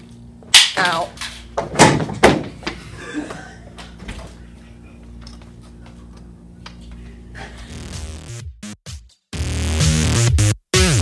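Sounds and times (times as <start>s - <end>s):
low mechanical hum: 0.0s - 7.8s.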